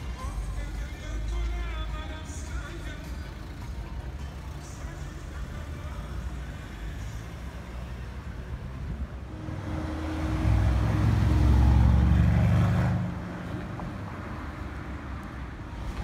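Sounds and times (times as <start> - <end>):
van passing in traffic: 0.0 - 16.0
deep car engine note: 9.2 - 13.3.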